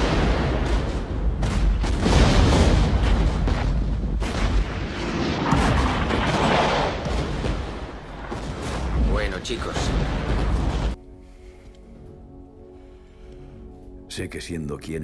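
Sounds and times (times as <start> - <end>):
artillery fire and explosions: 0.0 - 11.0.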